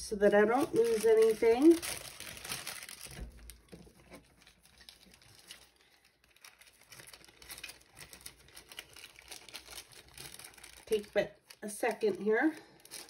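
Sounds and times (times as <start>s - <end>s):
plastic bags rustling: 0.1s - 13.0s.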